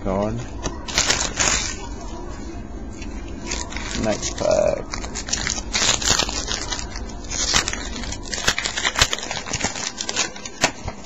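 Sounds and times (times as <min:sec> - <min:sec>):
wrapper tearing and crinkling: 0:00.8 - 0:02.0, 0:03.3 - 0:11.0.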